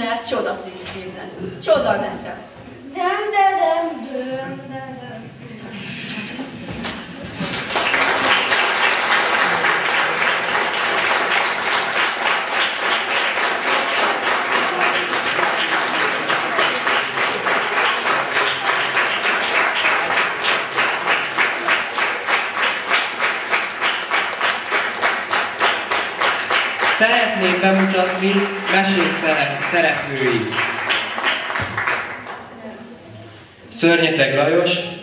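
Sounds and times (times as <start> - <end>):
audience applauding: 6.7 - 32.5
rhythmic clapping in unison: 6.7 - 32.5.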